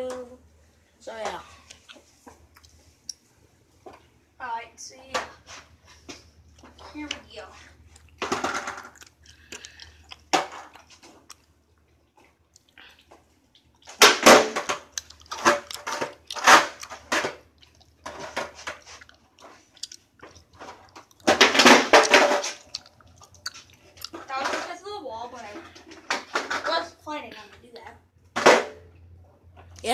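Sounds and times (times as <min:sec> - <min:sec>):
skateboard clattering against wall: 0:14.0 - 0:17.4, 0:21.2 - 0:22.6.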